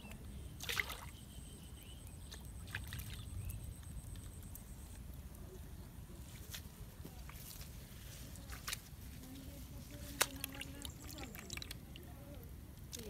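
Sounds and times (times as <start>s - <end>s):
water splashes: 0.6s - 1.2s, 2.4s - 3.3s, 9.9s - 12.1s.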